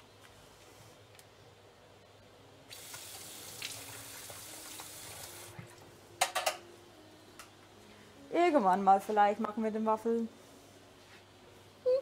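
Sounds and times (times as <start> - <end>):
kitchen tap running: 2.7 - 5.6.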